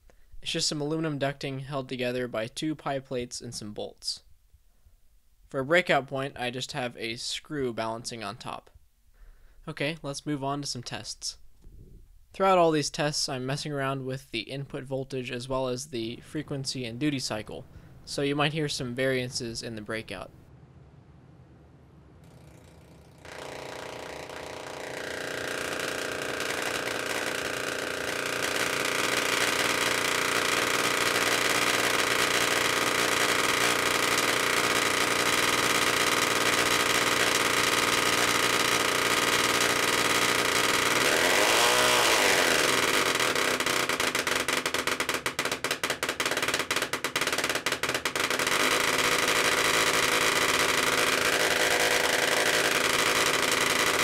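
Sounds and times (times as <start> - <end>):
tesla coil arcing buzz: 22.2 - 54.0.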